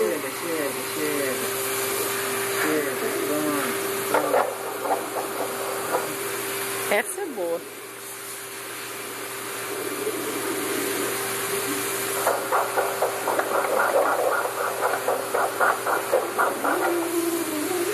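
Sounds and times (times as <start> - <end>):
ultrasound hiss: 0.0 - 17.9
whooshing heartbeat pulse: 12.2 - 16.8.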